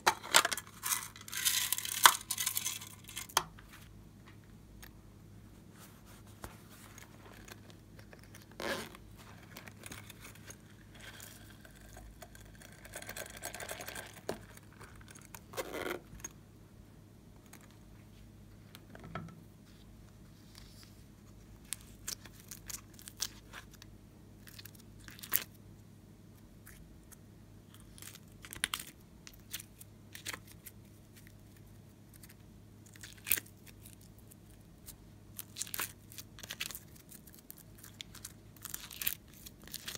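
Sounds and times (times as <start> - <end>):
rustling and crinkling: 5.6 - 16.3, 26.6 - 39.9.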